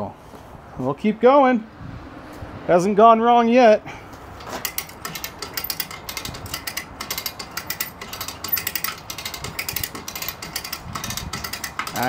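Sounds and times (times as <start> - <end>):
ratchet winch clicking: 4.4 - 12.0.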